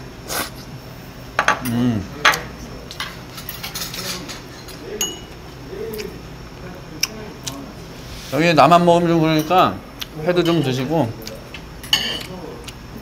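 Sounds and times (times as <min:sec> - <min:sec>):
utensils clicking against plates: 0:01.6 - 0:06.2.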